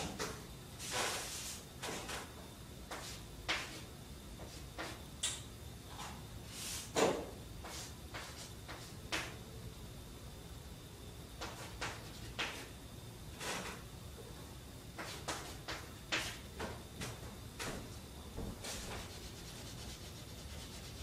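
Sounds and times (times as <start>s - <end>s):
chalk scratching on blackboard: 18.6s - 21.0s.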